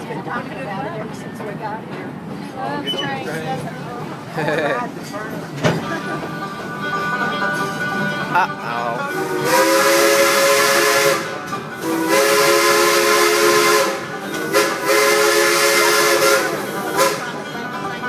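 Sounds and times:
steam locomotive chime whistle: 5.8 - 18.0.

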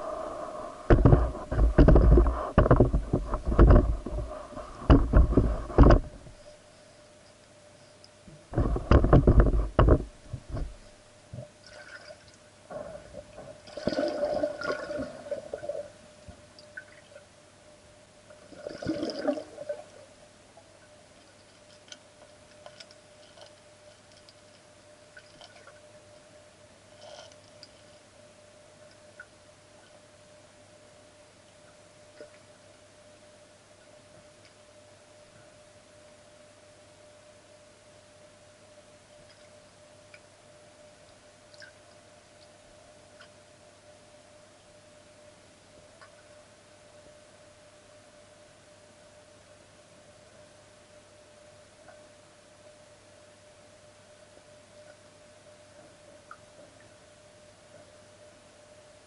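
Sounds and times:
underwater bubbling: 0.0 - 6.4, 8.5 - 17.3, 18.4 - 20.2
faint steady hum: 0.0 - 59.0
underwater gurgling rushing water: 13.7 - 15.8.

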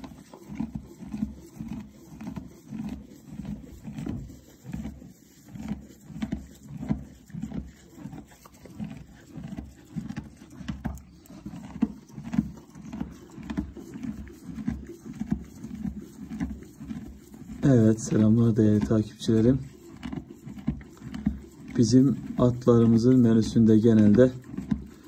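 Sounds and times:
horse chewing hay: 0.0 - 25.0.

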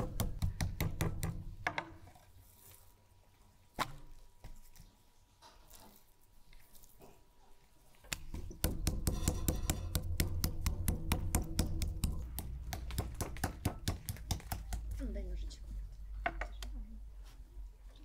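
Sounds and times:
metal mallet pounding meat on wood: 0.0 - 1.9, 8.1 - 15.0.

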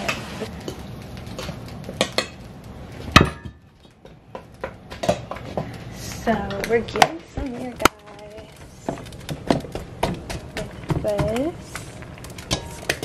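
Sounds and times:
metal utensils scraping pans: 10.3 - 13.0.

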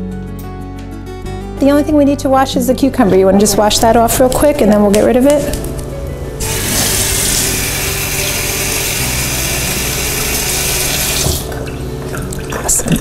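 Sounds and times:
faucet water splashing: 6.4 - 13.0.

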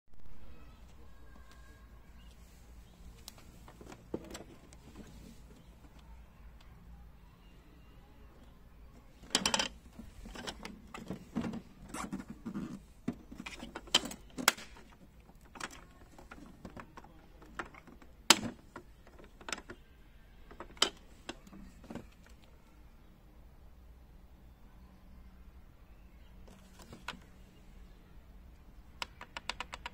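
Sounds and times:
plastic case clatter: 9.2 - 19.8.

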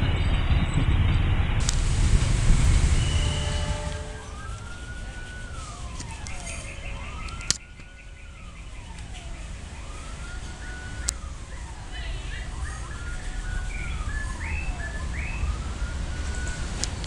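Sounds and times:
train rumbling past: 0.0 - 6.2
siren wailing: 1.6 - 17.0.

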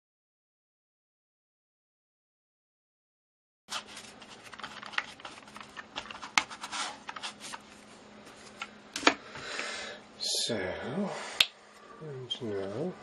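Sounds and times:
paintbrush scraping on canvas: 6.5 - 7.6.

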